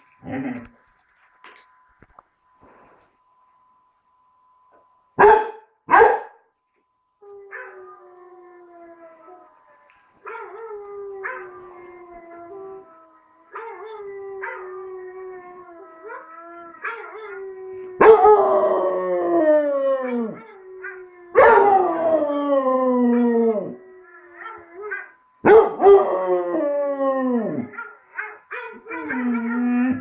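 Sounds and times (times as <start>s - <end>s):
dog howling: 7.3s - 30.0s.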